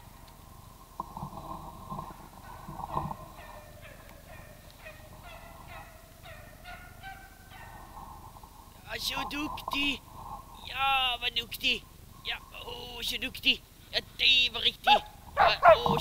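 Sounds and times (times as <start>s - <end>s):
dog growling: 15.4s - 16.0s.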